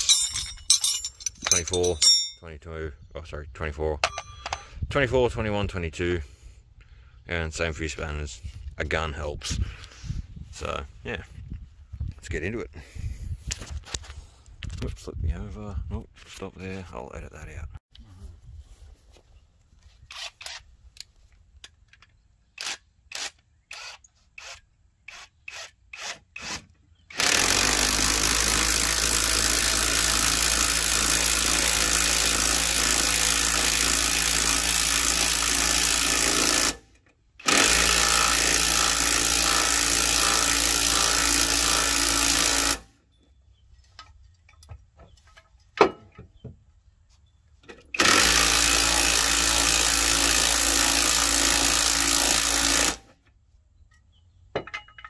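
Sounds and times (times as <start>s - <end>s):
impact wrench hammering: 0.0s - 2.4s.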